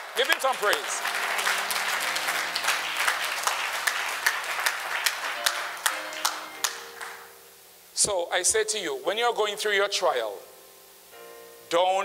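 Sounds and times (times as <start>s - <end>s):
congregation applauding: 0.0s - 7.4s.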